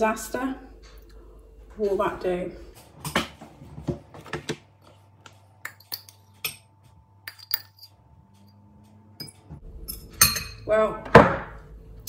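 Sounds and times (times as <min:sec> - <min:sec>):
utensil clinking in ceramic mug: 0:07.3 - 0:07.9.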